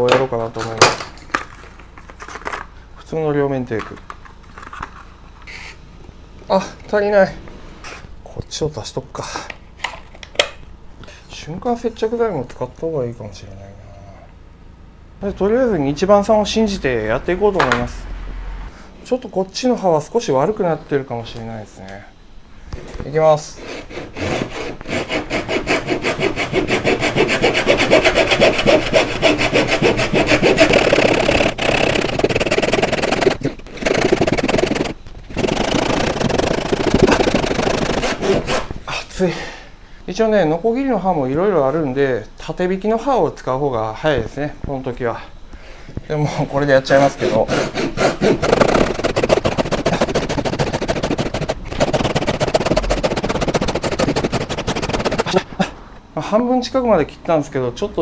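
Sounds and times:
hand saw cutting wood: 0:23.5 - 0:38.7, 0:46.9 - 0:55.4.

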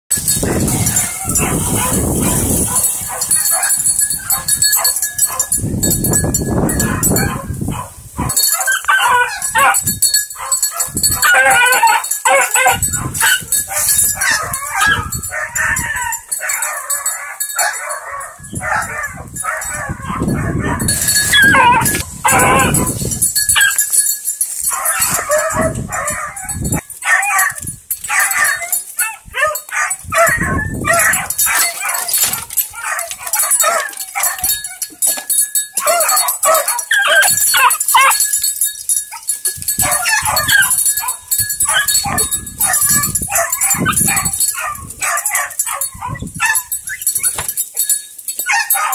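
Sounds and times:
puppy yelping and baying: 0:08.5 - 0:09.8, 0:10.4 - 0:22.9, 0:24.7 - 0:34.9, 0:35.8 - 0:38.2, 0:39.1 - 0:47.4, 0:48.5 - 0:48.9.

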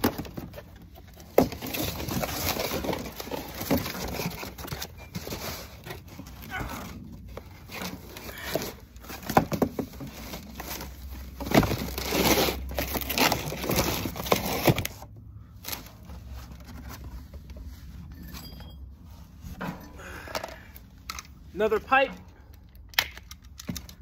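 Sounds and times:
cardboard box rustling: 0:00.0 - 0:18.0.

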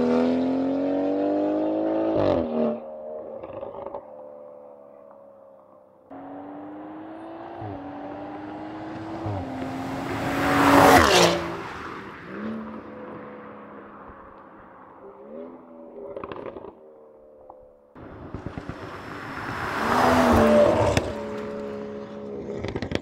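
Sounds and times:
car engine accelerating past: 0:06.2 - 0:14.4, 0:18.3 - 0:22.9
exhaust crackle: 0:18.0 - 0:23.0.

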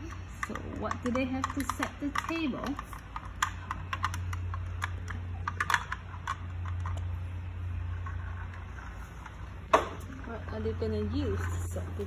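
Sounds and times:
plastic toy parts clicking: 0:00.0 - 0:07.1
steady low hum: 0:00.0 - 0:12.0.

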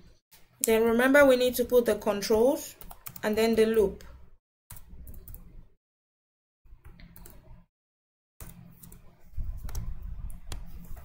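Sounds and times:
keyboard typing clicks: 0:02.8 - 0:03.6, 0:04.7 - 0:05.6, 0:06.8 - 0:07.6.

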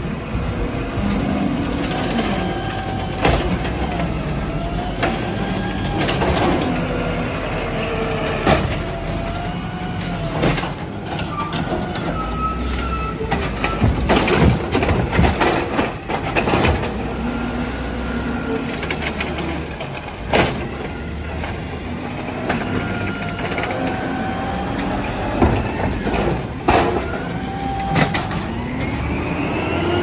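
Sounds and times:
garbage truck engine running: 0:00.0 - 0:30.0
carts banging: 0:08.3 - 0:28.7.

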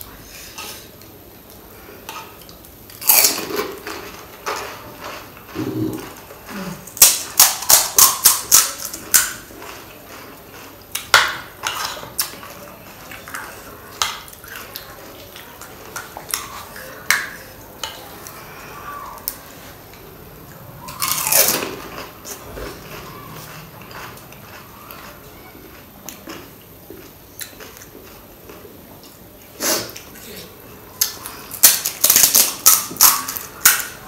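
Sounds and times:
crisp chewing crunches: 0:20.6 - 0:29.2.

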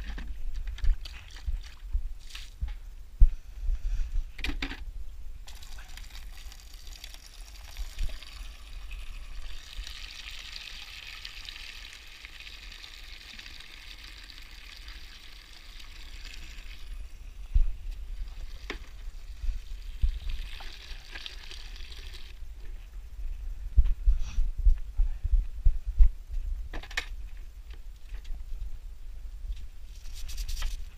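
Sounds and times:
water running into a bucket: 0:05.4 - 0:17.0, 0:18.2 - 0:22.3.

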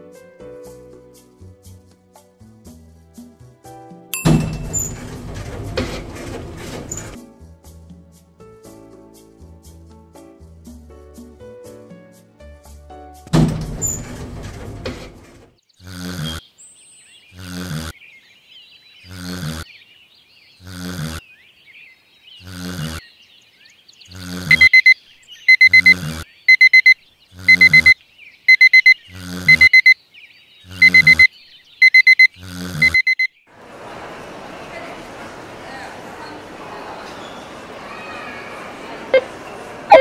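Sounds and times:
digital alarm clock beeping: 0:24.1 - 0:30.0, 0:30.7 - 0:33.3.

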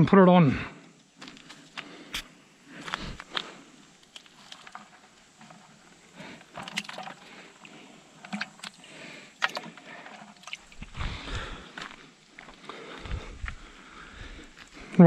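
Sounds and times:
hand rummaging in plastic bucket: 0:04.2 - 0:08.8
water sloshing: 0:04.3 - 0:11.2.

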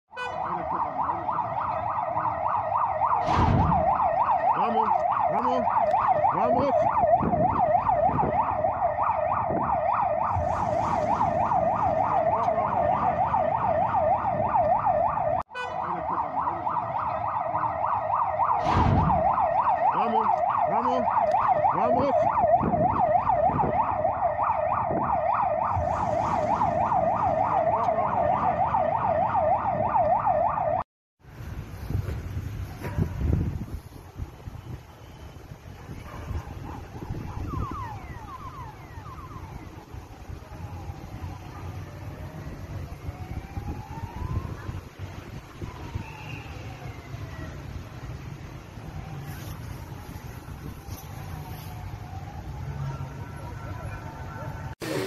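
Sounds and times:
siren yelping: 0:00.1 - 0:30.9, 0:35.9 - 0:47.8, 0:48.8 - 0:55.0
heavy thump: 0:03.2 - 0:03.9, 0:18.6 - 0:19.2.

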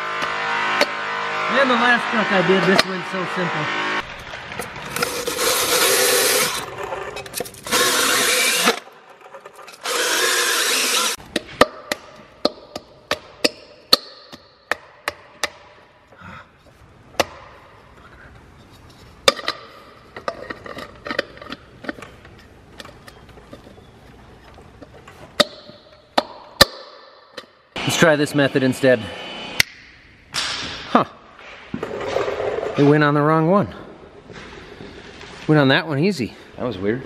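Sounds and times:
impact wrench running: 0:00.0 - 0:06.8, 0:07.5 - 0:08.8, 0:09.7 - 0:11.2.

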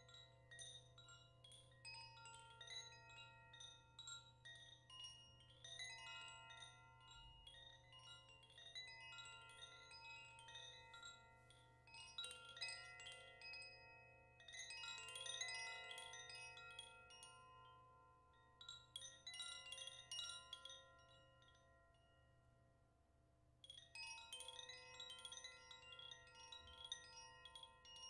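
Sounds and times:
wind chime jangling: 0:23.6 - 0:28.0.

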